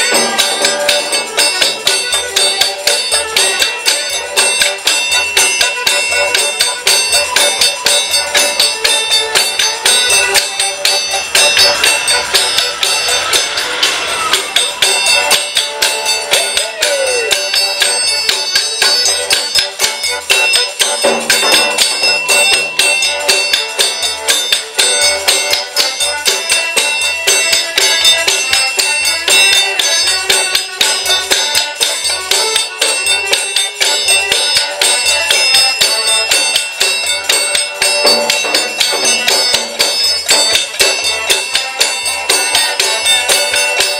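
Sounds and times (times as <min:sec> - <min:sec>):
accordion melody: 0:00.0 - 0:16.6
frame drum beating: 0:00.0 - 0:16.8, 0:35.8 - 0:41.3
triangle and shaker rattling: 0:00.0 - 0:43.9.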